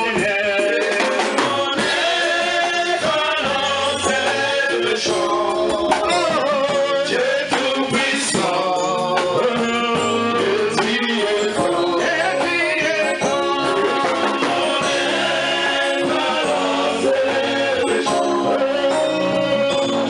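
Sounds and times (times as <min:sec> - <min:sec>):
amplified instrumental accompaniment: 0:00.0 - 0:20.0
man singing into microphone: 0:00.0 - 0:20.0.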